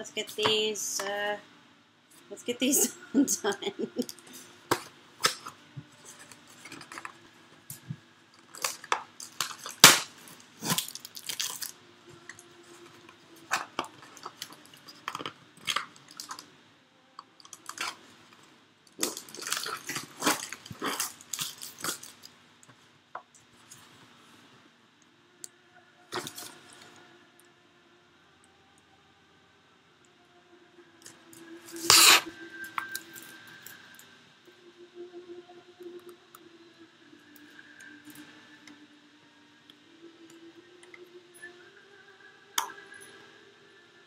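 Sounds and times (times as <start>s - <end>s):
cardboard and tape tearing: 8.5s - 11.7s, 19.0s - 22.2s, 31.7s - 32.3s.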